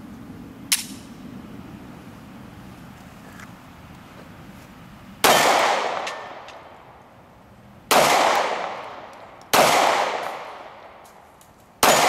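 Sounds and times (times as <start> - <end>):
pistol shots ringing out: 5.2 - 6.7, 7.9 - 11.0, 11.8 - 12.0.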